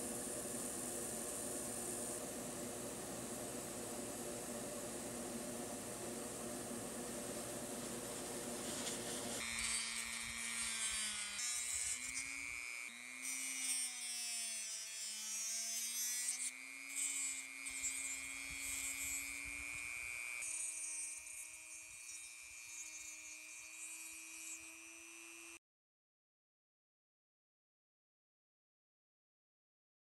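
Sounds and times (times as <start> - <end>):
rotary tool whining: 8.0 - 25.6.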